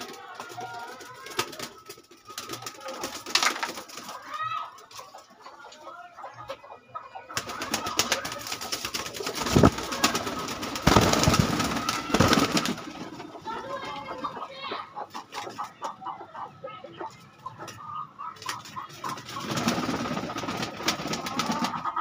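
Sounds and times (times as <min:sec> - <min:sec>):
pigeons cooing: 0:06.0 - 0:22.0
rustling clattering noise: 0:09.2 - 0:13.1.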